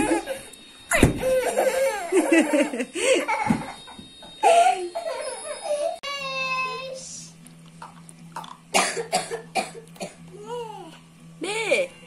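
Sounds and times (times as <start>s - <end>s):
thump: 0.9s - 1.3s
toddler giggling: 1.2s - 3.7s, 4.4s - 6.0s.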